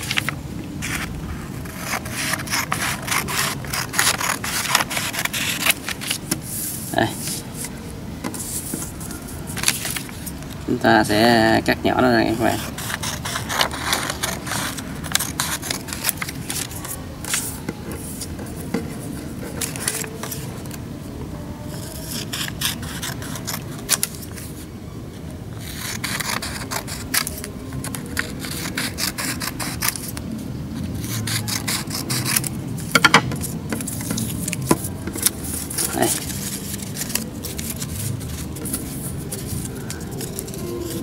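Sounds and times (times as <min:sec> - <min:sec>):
scissors snipping paper: 0:00.0 - 0:06.3, 0:12.3 - 0:20.7, 0:21.8 - 0:24.5, 0:25.6 - 0:30.2, 0:31.0 - 0:41.0
paper rustling: 0:00.0 - 0:10.6, 0:12.3 - 0:20.8, 0:32.2 - 0:41.0.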